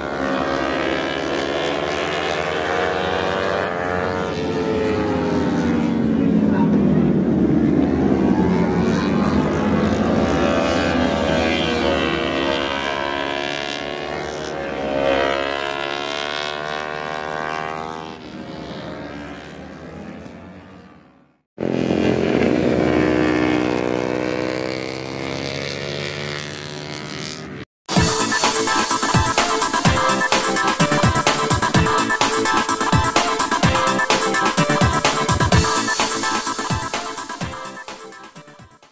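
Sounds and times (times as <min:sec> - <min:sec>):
racing motorcycles passing: 0:00.0 - 0:38.9
electronic music: 0:27.9 - 0:38.9.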